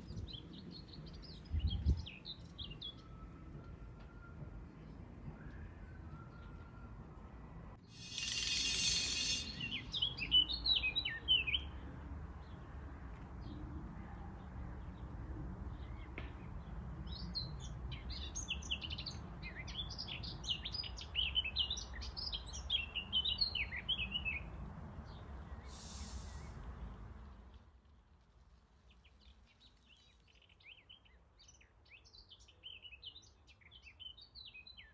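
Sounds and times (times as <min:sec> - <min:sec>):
small birds chirping: 0:07.9 - 0:11.7
short hissing whoosh: 0:08.0 - 0:09.8, 0:25.6 - 0:26.7.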